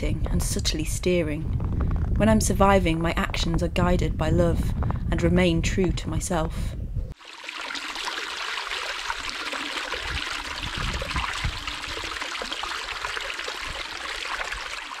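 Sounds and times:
stream splashing over rocks: 7.2 - 15.0.

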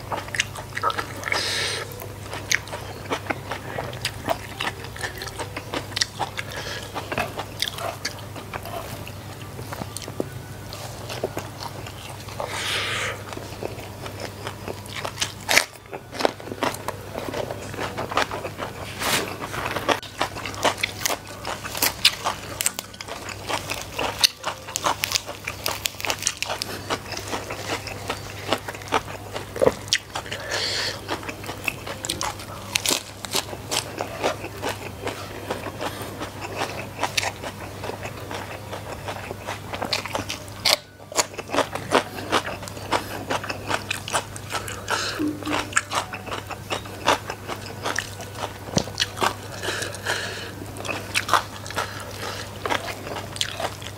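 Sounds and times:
low steady hum: 0.0 - 53.9
man chewing crunchy food: 0.0 - 53.9
wet mouth sounds: 44.6 - 47.2.

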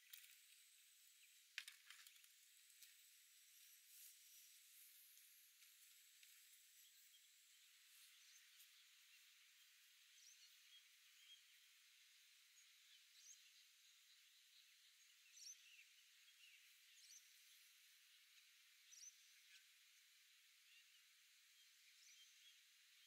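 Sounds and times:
faint outdoor hiss: 0.0 - 23.0.

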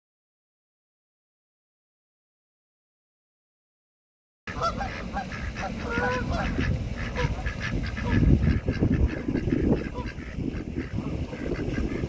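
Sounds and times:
ducks quacking: 4.5 - 12.0
low rumbling noise: 4.5 - 12.0.

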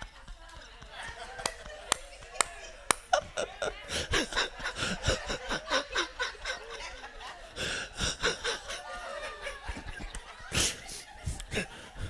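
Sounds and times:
person laughing: 3.1 - 6.2.

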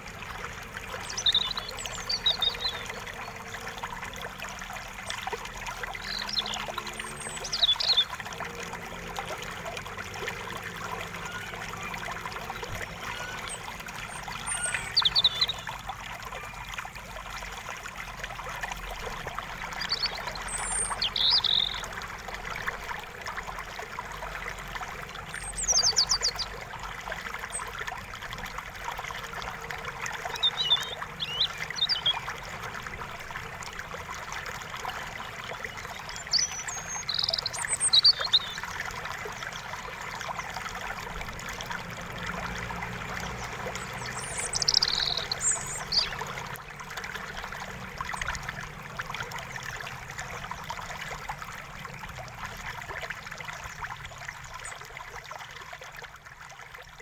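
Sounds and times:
running water rushing: 0.0 - 57.0
small birds chirping: 0.9 - 3.6, 5.8 - 8.2, 12.5 - 15.8, 19.8 - 21.9, 25.3 - 26.6, 30.2 - 32.4, 35.2 - 38.7, 43.2 - 46.6.

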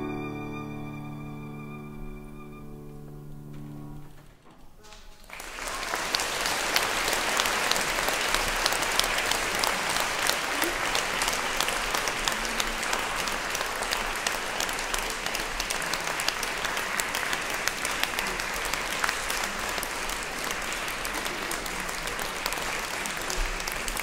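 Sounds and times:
audience applauding: 4.9 - 24.0.

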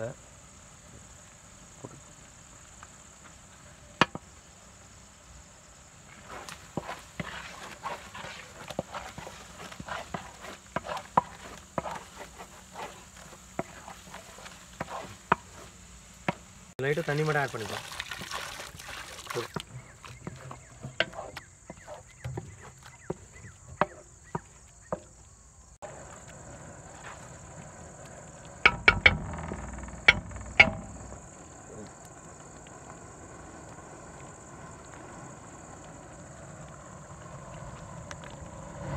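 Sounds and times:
spatula scraping metal pan: 6.2 - 15.8, 19.7 - 24.0
spatula knocking against pan: 28.7 - 29.2.

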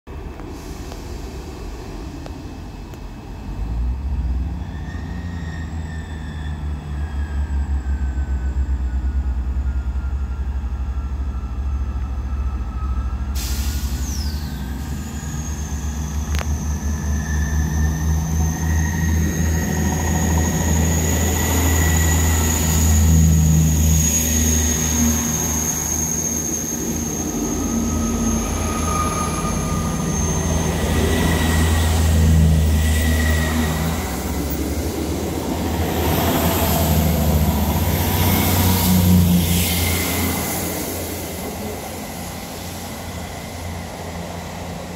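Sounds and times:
high-pitched wheel squeal: 4.4 - 35.1.

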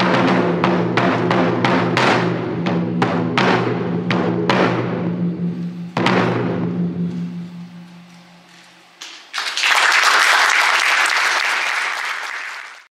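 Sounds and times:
taiko drum stroke ringing: 0.0 - 9.3
audience applause: 9.0 - 12.9.

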